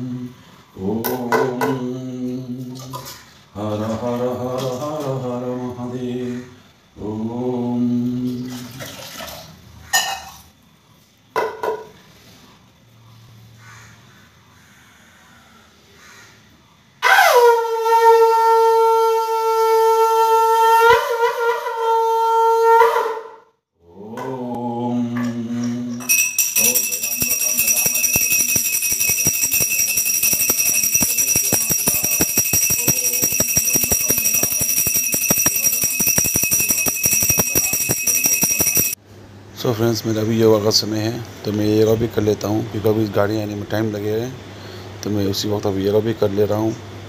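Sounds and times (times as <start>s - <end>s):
brass hand bell ringing rapidly: 26.1s - 39.0s.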